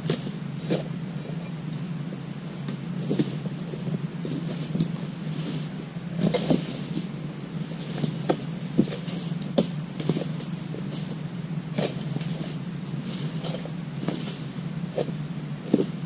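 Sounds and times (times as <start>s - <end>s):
steady low hum: 0.0s - 16.0s
chisel knocking into palm frond: 6.2s - 7.1s, 15.0s - 16.0s.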